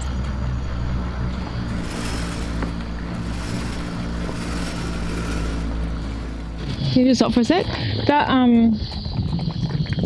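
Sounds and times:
electric winch running under load: 0.2 - 7.0.

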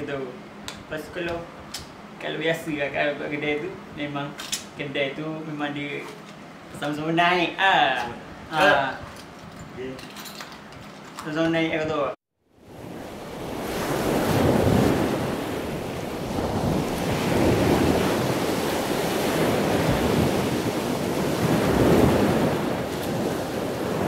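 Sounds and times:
ocean surf rushing: 12.6 - 24.0.

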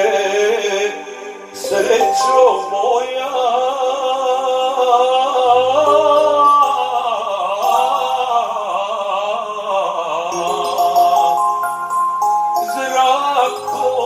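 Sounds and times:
man singing through microphone: 0.0 - 11.7, 12.6 - 14.0
electronic keyboard chords and bass: 5.6 - 8.7, 10.4 - 14.0.

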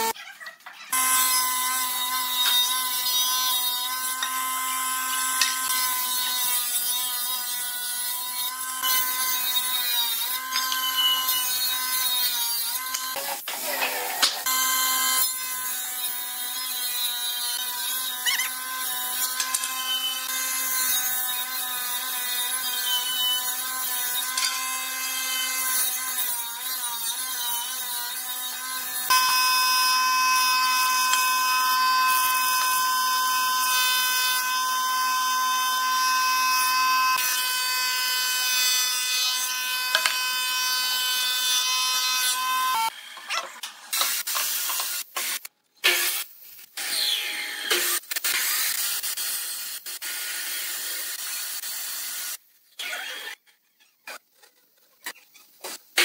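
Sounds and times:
table saw whining: 1.0 - 6.6, 8.6 - 13.2, 14.4 - 15.7, 17.4 - 43.4
thickness planer whining: 28.5 - 42.9.

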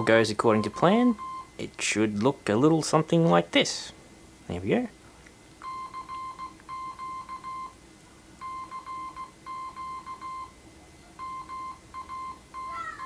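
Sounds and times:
morse code beeps: 0.0 - 1.6, 5.6 - 7.8, 8.4 - 10.6, 11.2 - 13.0.

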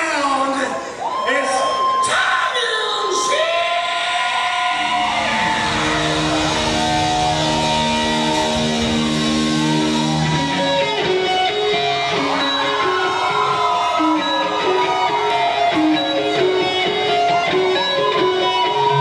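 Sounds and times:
electric guitar held notes: 4.8 - 19.0
live rock band playing: 4.8 - 19.0.

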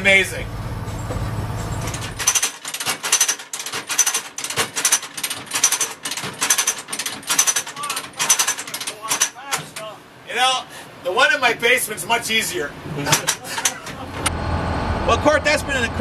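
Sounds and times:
low diesel hum: 0.0 - 2.3, 12.9 - 16.0
hand brake ratchet clanking: 0.9 - 9.9.

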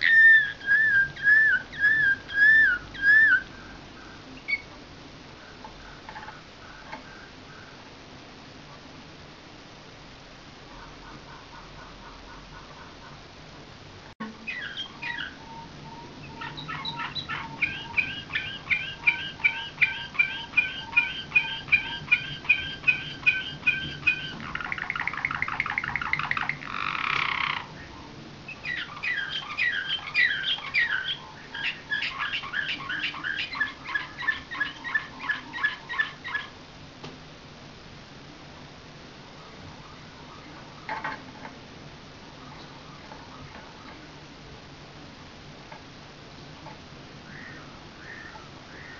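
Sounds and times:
canary singing: 0.0 - 4.8, 14.2 - 36.6, 47.2 - 48.9.

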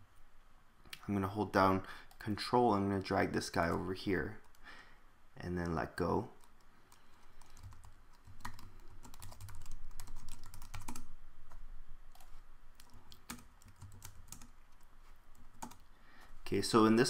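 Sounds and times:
computer keyboard typing: 6.4 - 11.1, 12.1 - 15.9.

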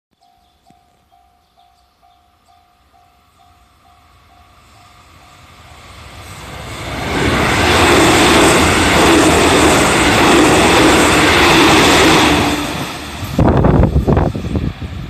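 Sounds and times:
level crossing warning bell: 0.2 - 5.6
electric train passing: 0.2 - 15.0.

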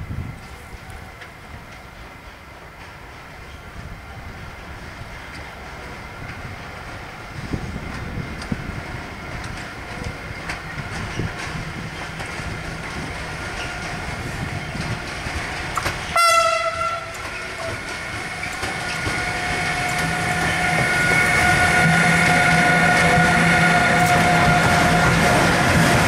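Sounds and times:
electric locomotive whine: 0.0 - 26.0
wheels rumbling on rail: 0.0 - 26.0
train horn blast: 16.1 - 17.9, 19.0 - 26.0.

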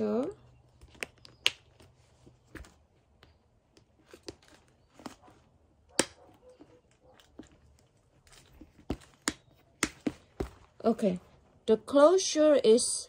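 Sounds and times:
leather handling noise: 3.7 - 10.8.

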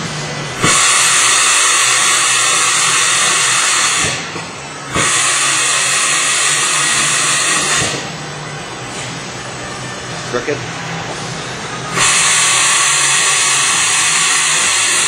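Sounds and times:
compressed air hissing: 0.6 - 8.2, 11.9 - 15.0.

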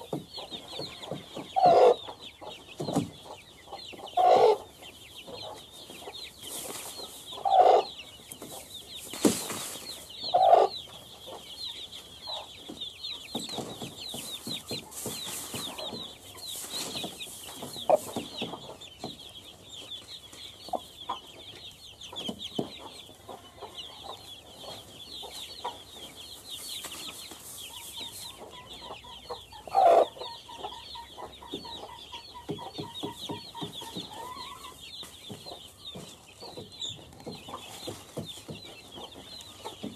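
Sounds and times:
chicks peeping: 0.0 - 39.9
hen clucking: 0.0 - 39.9.

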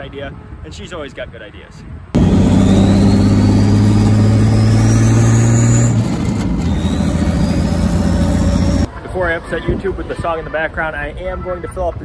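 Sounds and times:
car engine accelerating: 2.2 - 8.9
high turbo whistle: 2.2 - 8.9.

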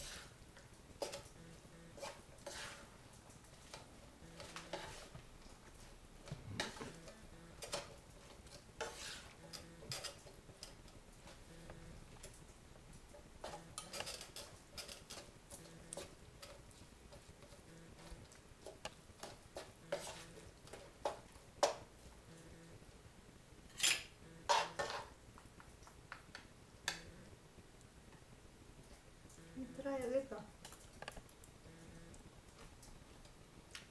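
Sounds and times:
spatula scraping and knocking wok: 0.0 - 0.4, 1.0 - 5.2, 6.2 - 11.5, 13.4 - 21.9, 23.7 - 25.2.

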